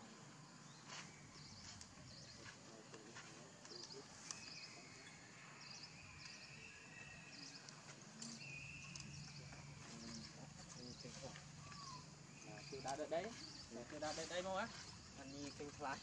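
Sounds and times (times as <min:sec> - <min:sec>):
thin sustained whistle: 0:08.2 - 0:10.1
small animal chirps: 0:11.1 - 0:13.6.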